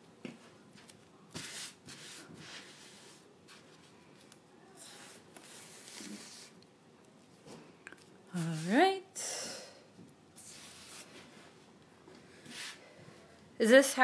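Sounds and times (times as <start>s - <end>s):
transfer rubbing against towel: 10.4s - 11.6s.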